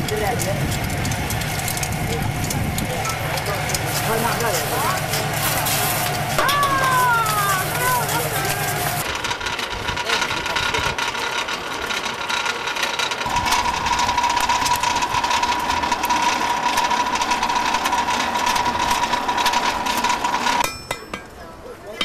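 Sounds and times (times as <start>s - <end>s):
machine clattering: 0.0s - 21.4s
machine high whine: 0.5s - 9.1s, 13.2s - 20.6s.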